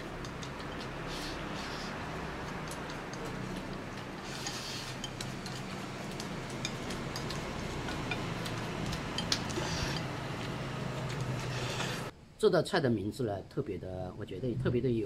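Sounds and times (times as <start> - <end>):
chopsticks clicking on porcelain bowls: 0.0 - 1.5, 2.2 - 11.3.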